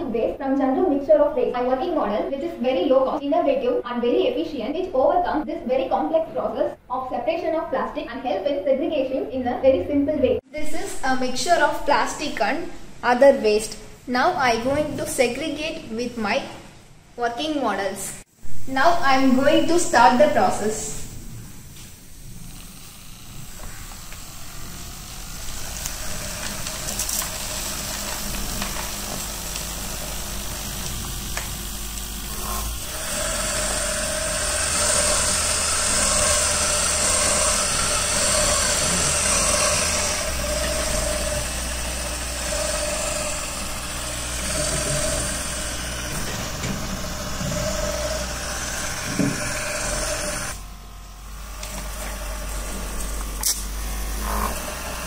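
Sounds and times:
motor humming and buzzing: 21.1s - 55.0s.

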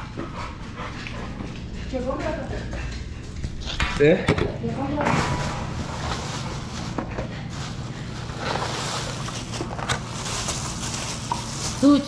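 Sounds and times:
steady low hum: 0.0s - 12.0s
plastic bag rustling: 4.9s - 12.0s.

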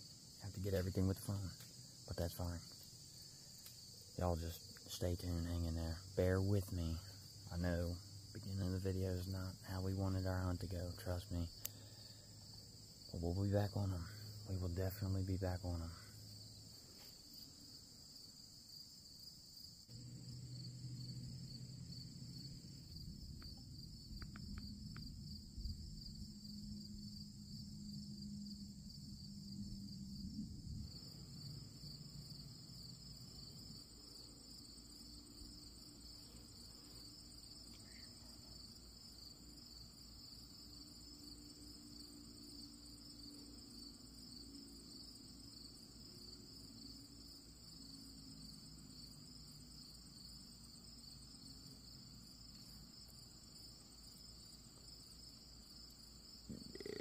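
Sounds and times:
insects chirping chorus: 0.0s - 57.0s
low rumble: 20.0s - 31.9s.

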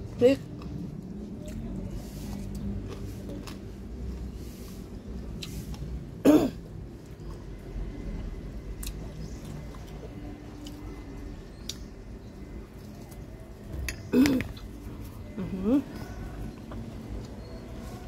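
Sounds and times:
low background rumble: 0.0s - 18.0s
person clearing throat: 6.2s - 6.6s, 14.1s - 14.5s.

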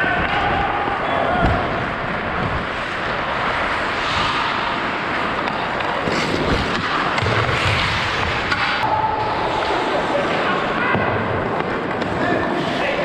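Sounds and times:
skate blades scraping on ice: 2.1s - 10.8s.

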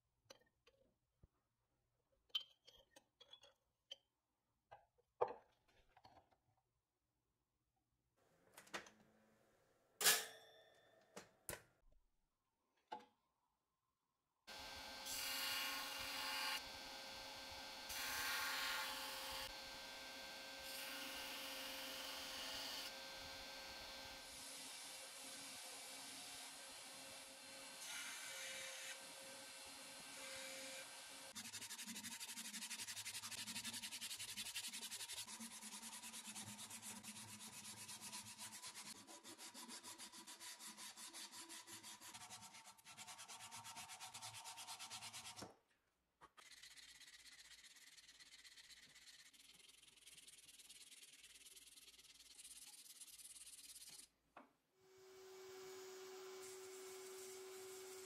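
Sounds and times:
sandpaper rubbing on metal: 31.4s - 45.4s, 46.4s - 54.1s, 56.4s - 58.0s.

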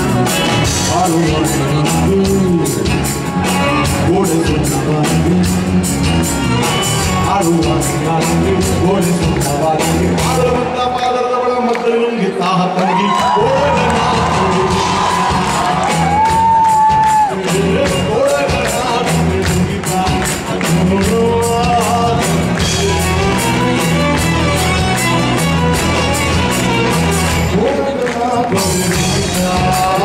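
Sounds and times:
man singing: 0.0s - 6.0s, 6.6s - 24.7s, 27.3s - 30.0s
electric bass: 0.0s - 10.7s, 13.4s - 30.0s
percussive beat: 13.3s - 30.0s.

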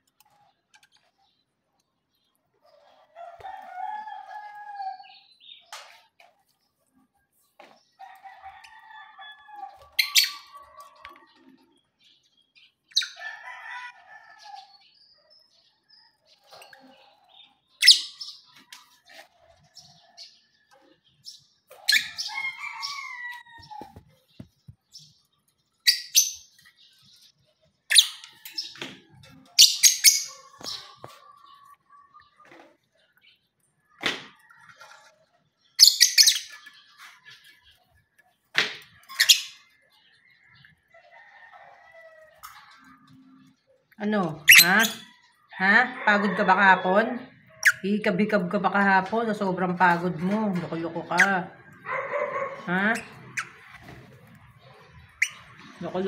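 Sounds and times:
birds chirping and squawking: 0.0s - 56.0s
sharp loud bird calls: 35.8s - 36.9s.

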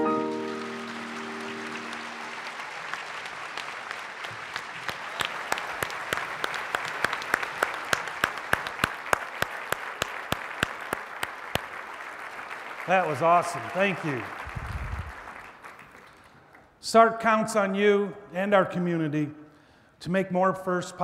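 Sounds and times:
piano chord ringing: 0.0s - 2.4s
audience applauding: 0.0s - 16.7s.

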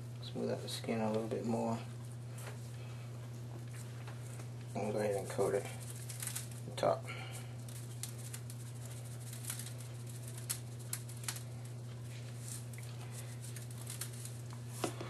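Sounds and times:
steady low hum: 0.0s - 15.0s
spice pattering from shaker: 4.2s - 14.8s.

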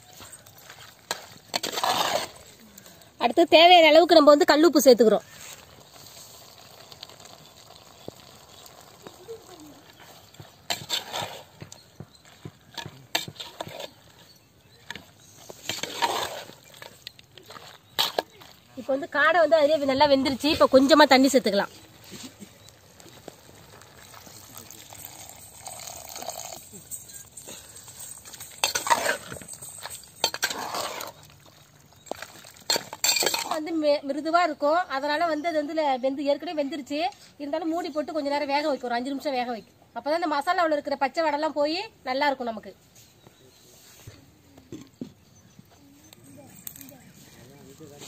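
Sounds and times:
metal ladle scraping clay pot: 0.3s - 2.6s, 9.8s - 18.6s, 19.5s - 33.6s
meat frying in oil: 5.3s - 10.8s.

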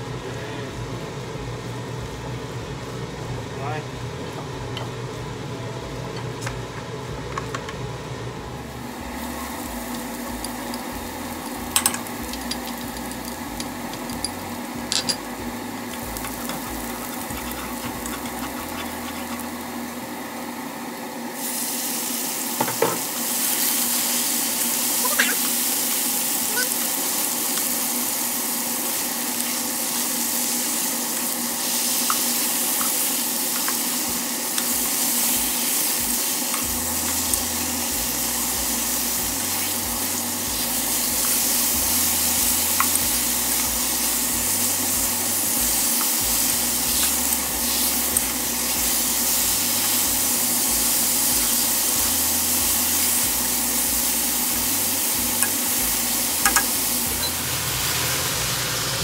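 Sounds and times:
meat sizzling in a wok: 4.1s - 59.0s.

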